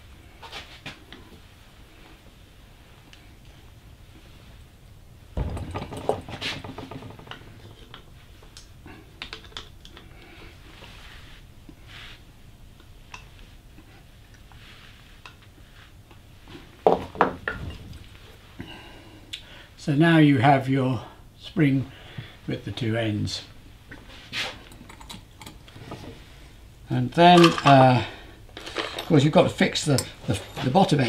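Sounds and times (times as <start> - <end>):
metallic clatter: 5.4 - 8.2.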